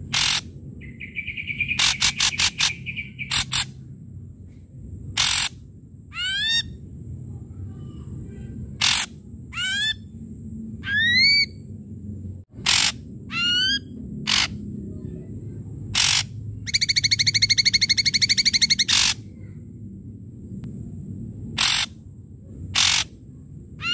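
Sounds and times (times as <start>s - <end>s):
fast rattling bird trill: 0.0s - 3.9s, 5.1s - 6.8s, 8.7s - 10.1s, 10.8s - 11.6s, 12.6s - 14.7s, 15.9s - 19.5s, 21.6s - 22.0s, 22.7s - 23.2s
harsh rasping bird calls: 0.0s - 3.9s, 5.1s - 6.8s, 8.7s - 10.1s, 10.8s - 11.6s, 12.6s - 14.6s, 15.9s - 19.6s, 21.6s - 22.0s, 22.7s - 23.2s
bird whistled notes: 0.2s - 3.7s, 16.0s - 19.2s.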